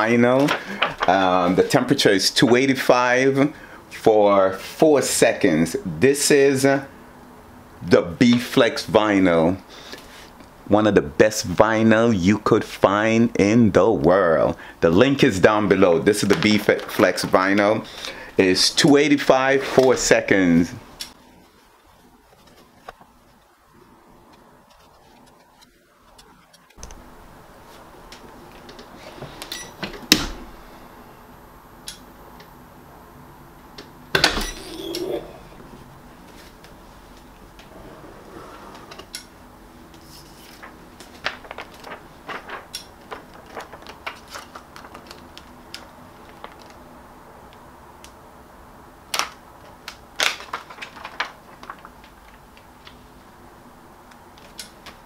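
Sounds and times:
plastic sheet clicking and crackling: 40.0 - 46.9, 49.1 - 53.1, 54.1 - 55.0.

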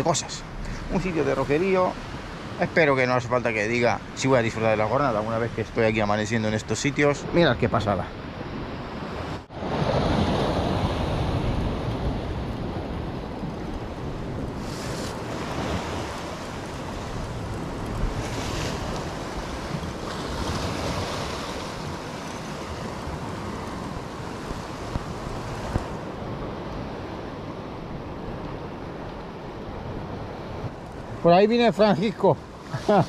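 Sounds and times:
waves washing against rocks: 0.0 - 6.2, 9.5 - 26.3
wind on microphone: 5.0 - 31.2.

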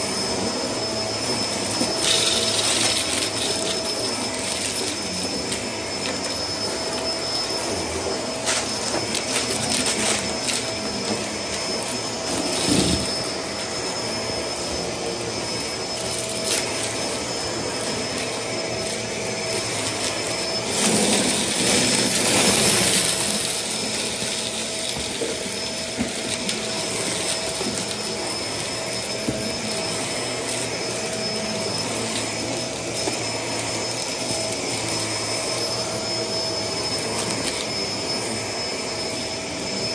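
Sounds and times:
stick vacuum whining: 0.0 - 39.9
debris rattling up nozzle: 1.2 - 7.7.

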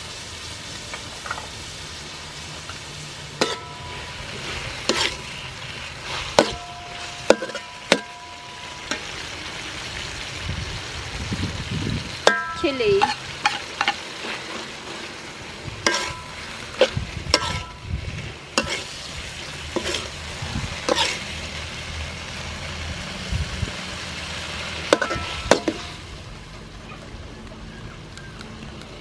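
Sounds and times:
scallops sizzling in a wok: 0.0 - 26.8
metal spatula scraping a wok: 3.1 - 9.3, 12.2 - 21.5, 24.8 - 26.1.

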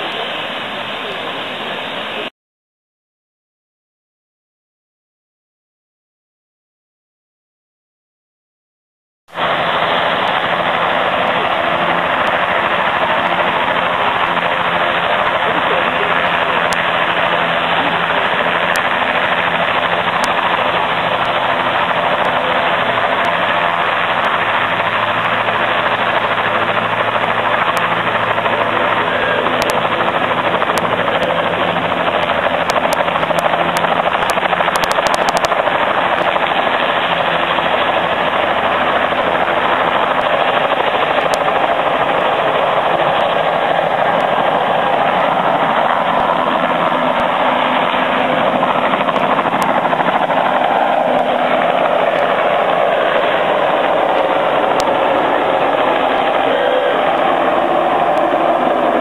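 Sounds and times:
helicopter rotor drone: 0.0 - 2.3, 9.3 - 59.0.

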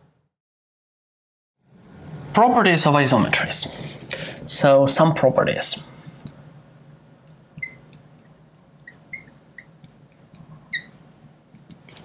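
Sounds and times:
marker squeaking on glass: 7.5 - 8.1, 8.8 - 12.0.

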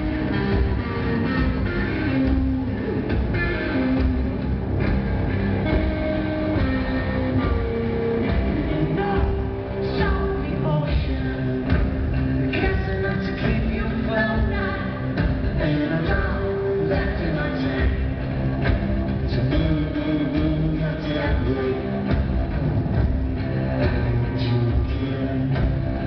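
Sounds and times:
electric guitar: 0.0 - 26.0
live rock band playing: 0.0 - 26.0
person singing: 5.6 - 18.3, 19.3 - 22.2.

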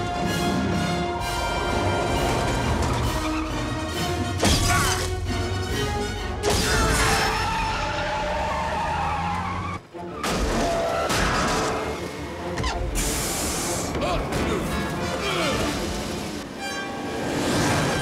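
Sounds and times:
orchestral score: 0.0 - 18.0
speeding truck: 7.4 - 13.7.

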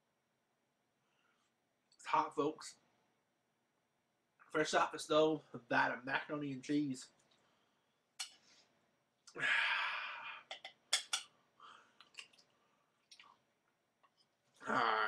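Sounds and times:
long breath out: 9.4 - 10.4
fork clicking against steel pot: 10.5 - 11.3.

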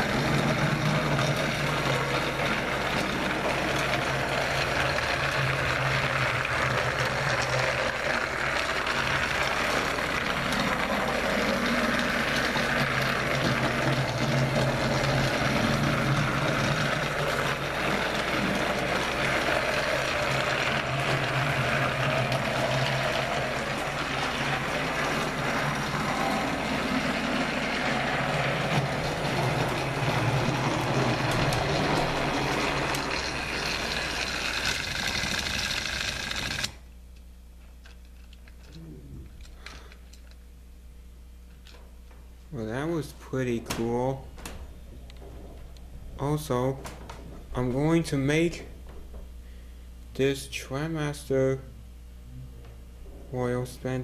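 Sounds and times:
toy train motor whirring: 0.0 - 36.8
toy train wheels clattering: 0.0 - 36.8.

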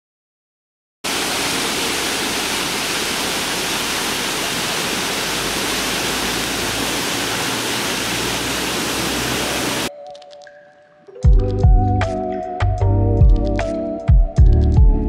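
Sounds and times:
waterfall rushing: 1.1 - 9.9.

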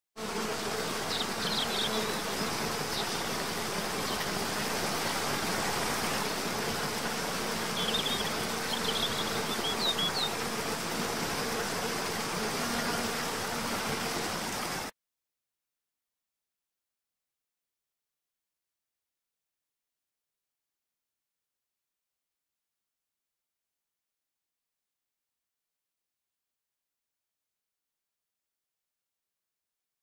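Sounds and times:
insect buzz: 0.2 - 14.9
rushing water: 2.1 - 14.9.

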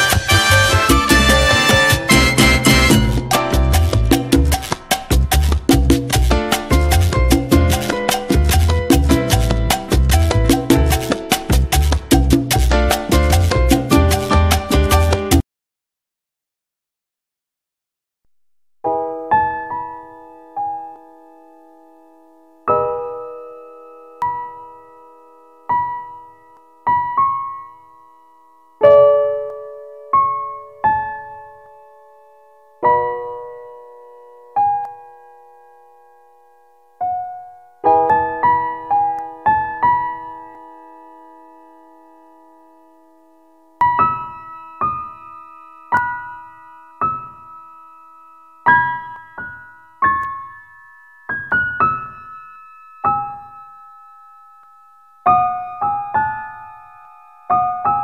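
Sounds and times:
slow piano music: 0.0 - 15.4, 18.9 - 58.0.

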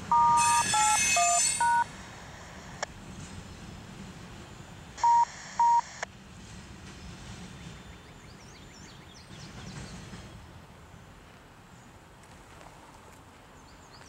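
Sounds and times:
short beeps: 0.1 - 1.9, 5.0 - 5.9
radio squelch static: 5.0 - 6.1.

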